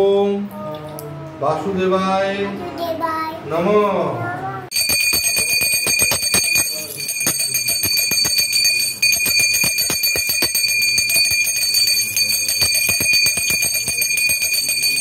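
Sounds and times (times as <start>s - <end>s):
hand bell ringing: 4.7s - 15.0s.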